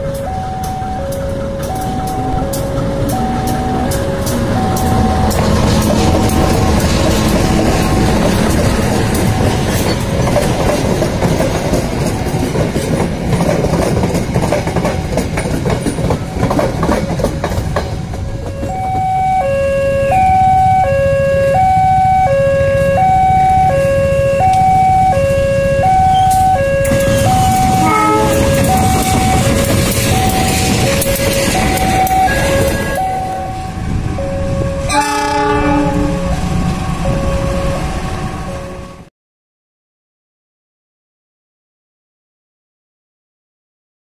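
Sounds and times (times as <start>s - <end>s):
two-tone alarm: 0.0s - 10.5s, 18.1s - 39.1s
train coaches rumbling past: 0.0s - 39.1s.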